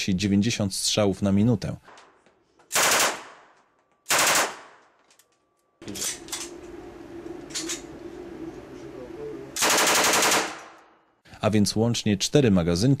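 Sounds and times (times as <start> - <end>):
submachine gun burst: 2.7 - 3.3, 4.1 - 4.8, 9.6 - 10.8
low hum: 4.7 - 9.6.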